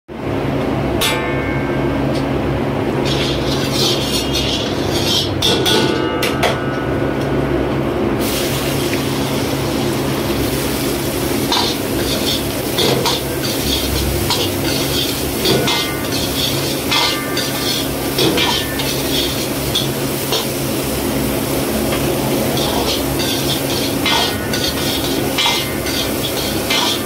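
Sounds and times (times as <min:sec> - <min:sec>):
steady low hum: 0:00.1 - 0:27.0
food sizzling in hot oil: 0:03.0 - 0:05.3, 0:08.2 - 0:27.0
metal ladle clanking on wok: 0:22.6 - 0:27.0.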